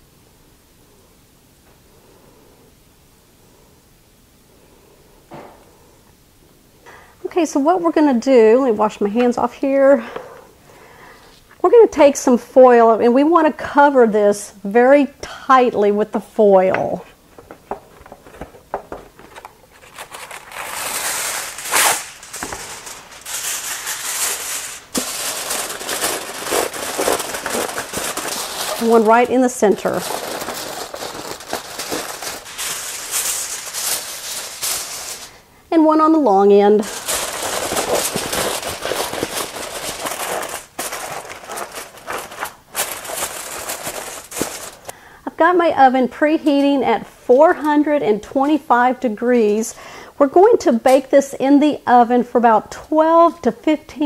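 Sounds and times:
aluminium foil crinkling: 0:17.3 - 0:35.4, 0:36.7 - 0:44.9.

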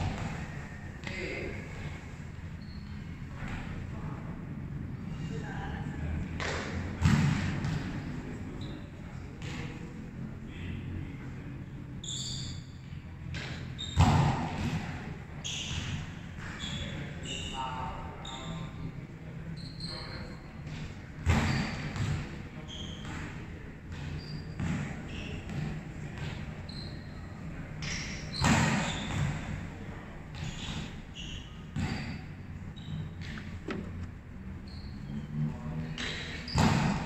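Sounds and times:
volleyball smacks echoing in hall: 0:00.0 - 0:01.9, 0:06.1 - 0:08.6, 0:13.2 - 0:16.6, 0:20.0 - 0:26.6, 0:27.7 - 0:31.0, 0:31.7 - 0:32.4, 0:35.6 - 0:37.0.

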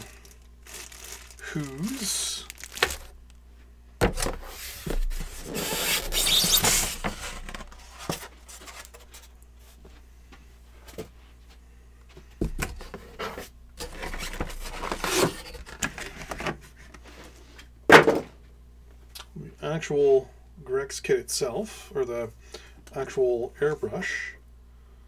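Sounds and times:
plastic and cardboard rustling: 0:00.0 - 0:03.2, 0:04.0 - 0:09.4, 0:12.4 - 0:17.4.

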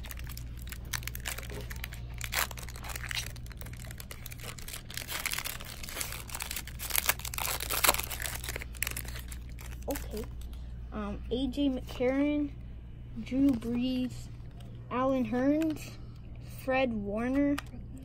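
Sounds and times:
foil wrapper crinkling and tearing: 0:00.0 - 0:10.5
steady low hum: 0:00.0 - 0:18.0.

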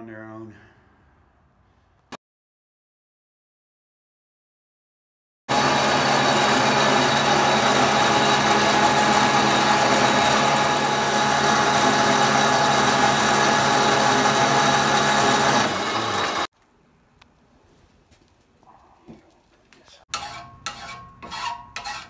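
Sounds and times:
bandsaw cutting steel: 0:05.5 - 0:16.5, 0:20.1 - 0:22.0.

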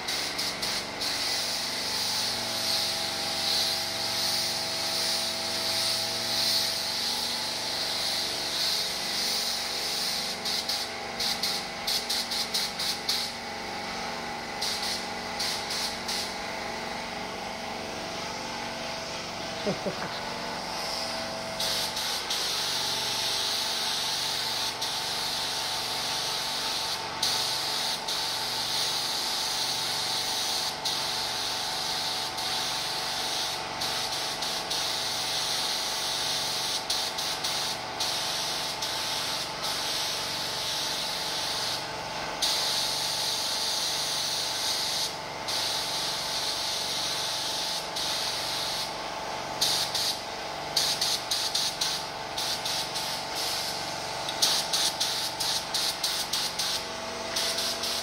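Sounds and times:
steady hum: 0:00.0 - 0:27.2, 0:51.2 - 0:58.0
paint spray gun hissing: 0:00.0 - 0:58.0.

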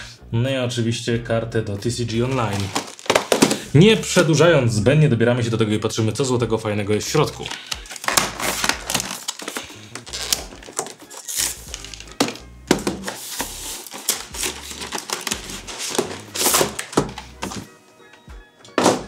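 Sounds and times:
background music: 0:00.0 - 0:19.0
cardboard and plastic packaging crinkling: 0:01.9 - 0:03.8, 0:06.9 - 0:17.7.

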